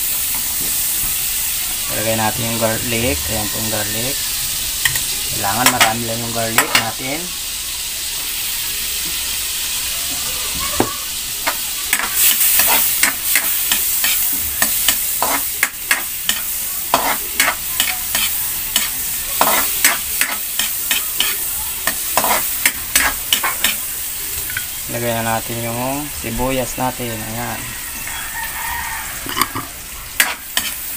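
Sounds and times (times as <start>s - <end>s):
garlic sizzling in butter: 0.0s - 30.9s
metal spatula scraping a wok: 11.9s - 23.8s, 29.2s - 30.9s.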